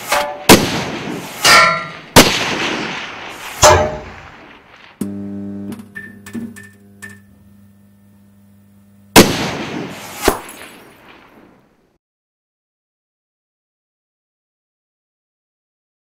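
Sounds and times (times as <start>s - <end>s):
echoing gunshots: 0.0s - 5.0s, 9.2s - 11.6s.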